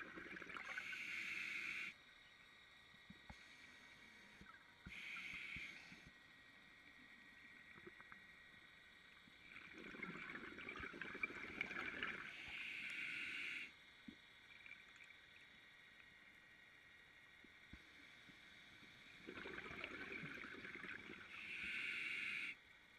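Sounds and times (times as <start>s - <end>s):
regulator inhalation hiss: 0.6s - 2.0s, 3.3s - 6.2s, 12.2s - 13.8s, 21.2s - 22.6s
bubbling regulator exhalation: 9.5s - 12.5s, 19.2s - 21.7s.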